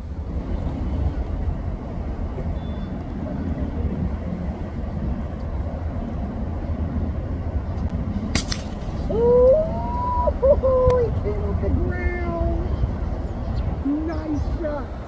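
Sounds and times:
steady low rumble: 0:00.0 - 0:15.0
air rifle shot: 0:08.3 - 0:09.0.

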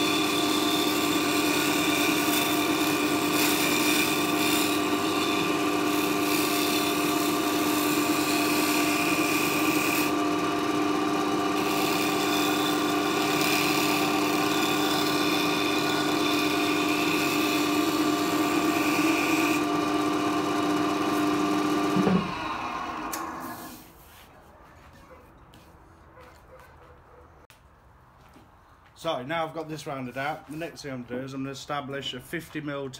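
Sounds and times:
wood lathe humming: 0:00.0 - 0:23.8.

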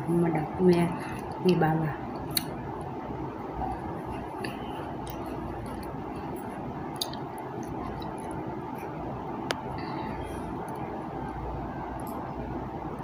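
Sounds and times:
chewing: 0:03.6 - 0:09.0.

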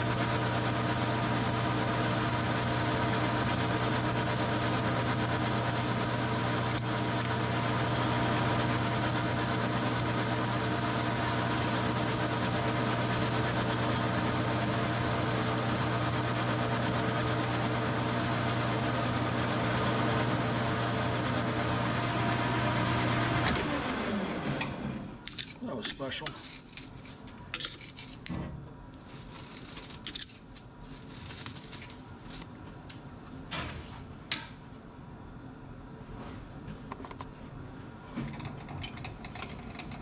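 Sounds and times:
metal lathe humming: 0:00.0 - 0:24.6.

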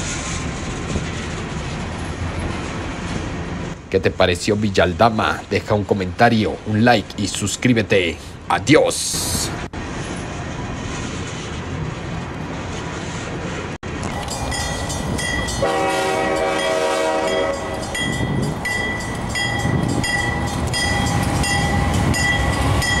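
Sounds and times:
freight train rumbling: 0:00.0 - 0:23.0
bell ringing: 0:14.1 - 0:23.0
locomotive chord horn: 0:14.5 - 0:23.0.

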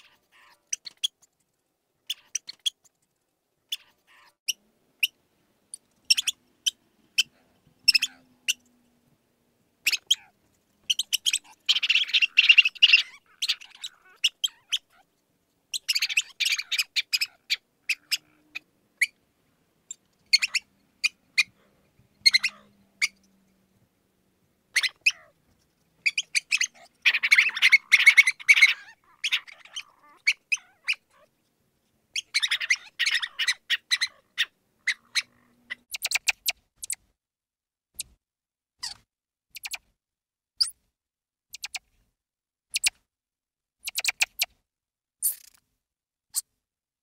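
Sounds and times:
mouse squeaking: 0:00.0 - 0:01.4, 0:02.0 - 0:03.0, 0:03.7 - 0:08.7, 0:09.8 - 0:15.1, 0:15.7 - 0:19.2, 0:19.9 - 0:21.6, 0:22.2 - 0:23.3, 0:24.7 - 0:31.3, 0:32.1 - 0:37.0, 0:38.0 - 0:38.2, 0:38.8 - 0:39.9, 0:41.5 - 0:41.9, 0:42.7 - 0:43.0, 0:43.8 - 0:44.6, 0:45.2 - 0:45.6.

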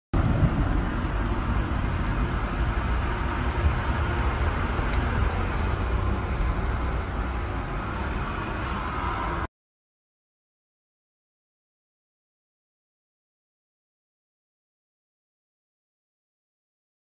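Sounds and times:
city street traffic rumble: 0:00.2 - 0:09.5.

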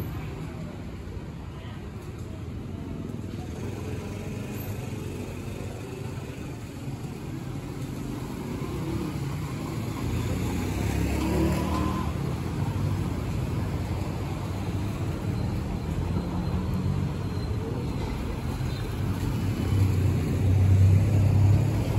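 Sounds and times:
street traffic: 0:00.0 - 0:21.9.

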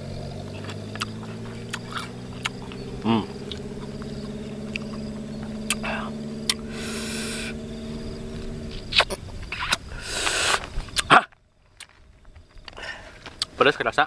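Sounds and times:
low steady hum: 0:00.0 - 0:10.9
lip smacks and clicks: 0:00.5 - 0:02.8, 0:04.7 - 0:05.0, 0:05.6 - 0:06.7, 0:08.9 - 0:11.1
hissing breaths through lips: 0:05.7 - 0:07.6, 0:08.9 - 0:10.9.

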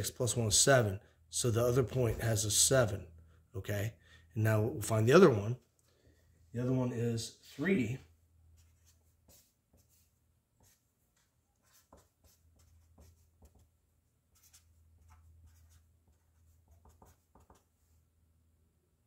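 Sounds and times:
low steady hum: 0:00.0 - 0:19.0
pen scratching and tapping: 0:10.6 - 0:13.8, 0:14.4 - 0:17.7.

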